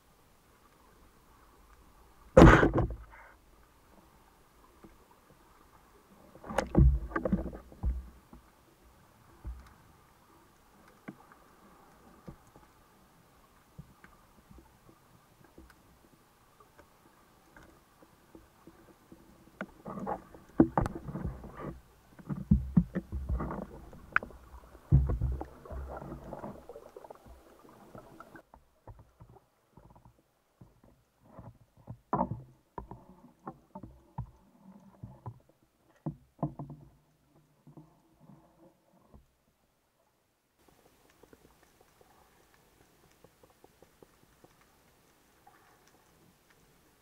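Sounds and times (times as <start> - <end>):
underwater bubbling: 0.7 - 28.5, 40.6 - 47.0
underwater clicks and knocks: 2.4 - 3.3, 6.4 - 8.5, 9.4 - 9.8, 18.3 - 38.3.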